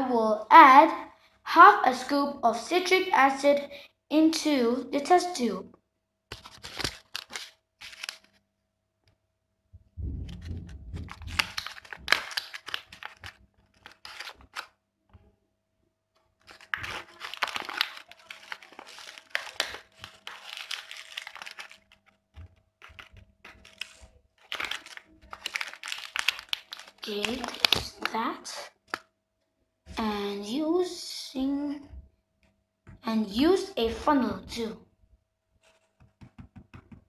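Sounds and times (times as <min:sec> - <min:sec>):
plastic bag crinkling: 0:06.4 - 0:08.4, 0:10.2 - 0:14.8, 0:16.4 - 0:29.0.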